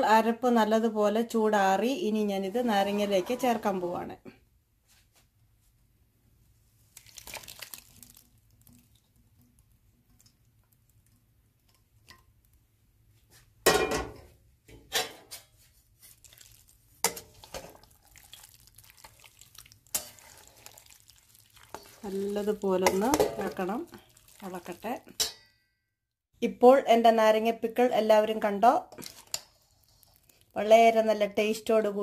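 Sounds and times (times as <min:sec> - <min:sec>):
metal utensils scraping a pan: 0:02.4 - 0:04.0, 0:14.8 - 0:18.4, 0:19.9 - 0:20.8, 0:21.6 - 0:24.2, 0:28.9 - 0:30.3.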